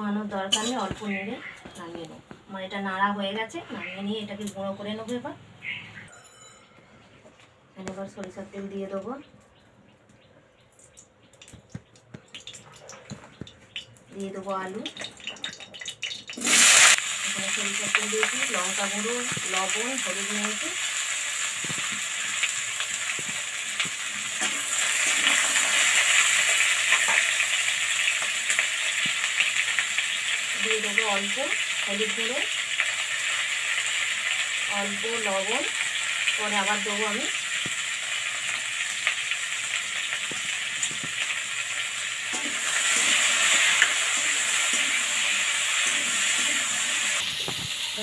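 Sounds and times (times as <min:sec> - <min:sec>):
potatoes sizzling in hot oil: 0:14.2 - 0:48.0.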